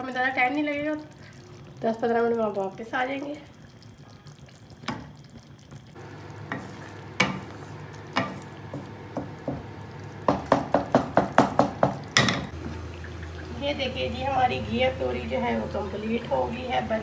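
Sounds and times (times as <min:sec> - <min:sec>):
wooden spatula knocking metal pan: 0:10.3 - 0:12.5
low steady hum: 0:12.0 - 0:17.0.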